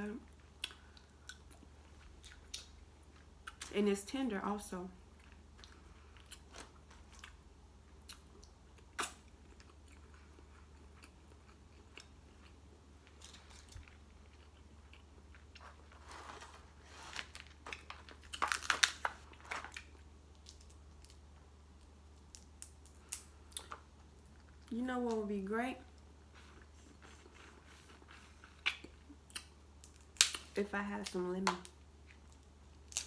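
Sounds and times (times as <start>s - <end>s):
chewing and lip-smacking: 5.2s - 15.7s, 25.9s - 29.6s
crab shell cracking: 17.7s - 21.2s.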